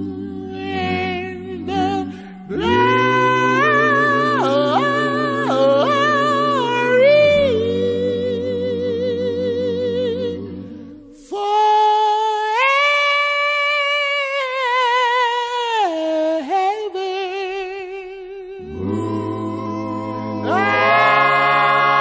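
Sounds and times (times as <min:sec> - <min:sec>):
low backing voices singing: 0:00.0 - 0:11.5, 0:18.6 - 0:22.0.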